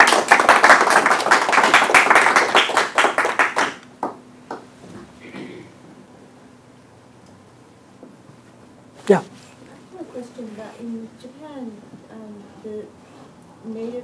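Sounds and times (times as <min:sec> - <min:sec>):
small audience applauding: 0:00.0 - 0:04.7.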